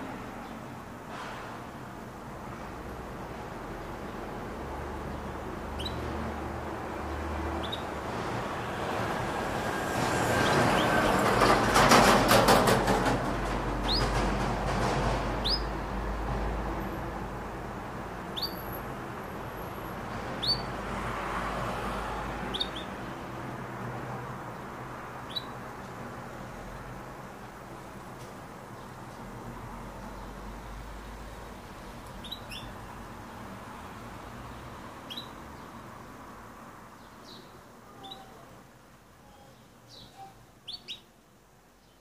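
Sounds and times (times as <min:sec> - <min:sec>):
canary chirping: 0:04.9 - 0:08.0, 0:10.3 - 0:11.2, 0:13.8 - 0:14.2, 0:15.4 - 0:15.9, 0:18.2 - 0:19.0, 0:20.3 - 0:20.8, 0:22.4 - 0:23.1, 0:25.2 - 0:26.0, 0:32.0 - 0:32.9, 0:35.0 - 0:35.9, 0:37.0 - 0:38.5, 0:39.2 - 0:41.2.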